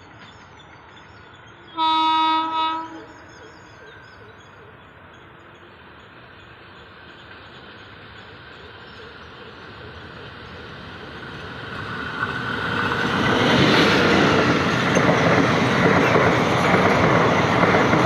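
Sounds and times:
train rumble: 0.0 - 18.0
train horn blast: 1.7 - 3.2.

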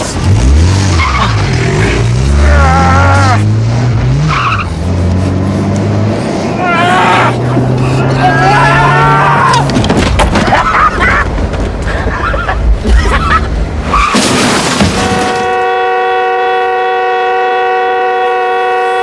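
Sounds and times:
heavy rumble: 4.7 - 15.5
car crash bangs and crunches: 9.6 - 12.1, 13.8 - 15.6
car horn sounding continuously: 15.0 - 19.0.

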